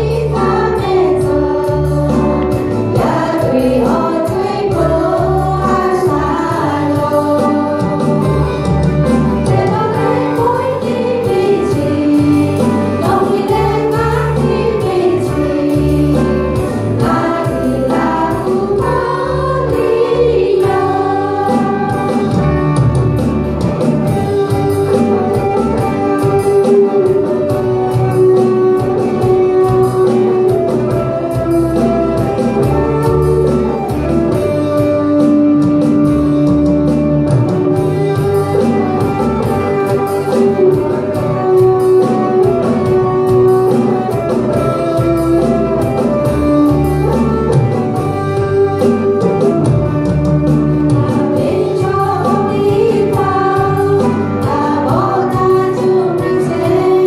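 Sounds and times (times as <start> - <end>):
women's choir singing: 0.0 - 2.4, 3.0 - 8.0, 9.5 - 22.4, 51.0 - 57.0
instrumental accompaniment: 0.0 - 57.0.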